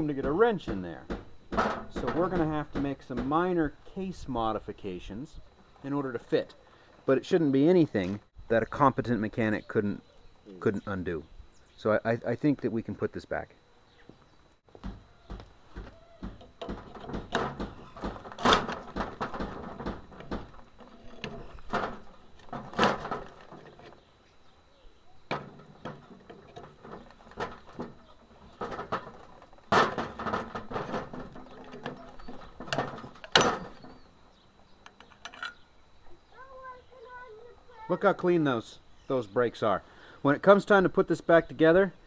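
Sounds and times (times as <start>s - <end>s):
bolt cutters crunching metal: 16.4s - 24.0s.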